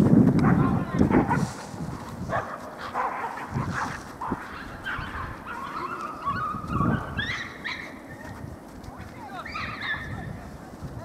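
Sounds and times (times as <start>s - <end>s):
people shouting calls: 4.5s - 11.0s.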